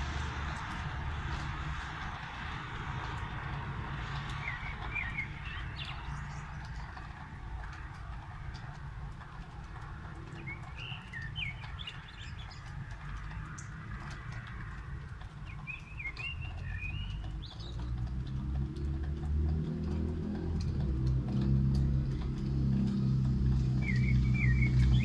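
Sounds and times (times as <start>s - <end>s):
steady rain hiss: 0.0s - 24.4s
low engine hum: 0.0s - 25.0s
water dripping: 0.0s - 25.0s.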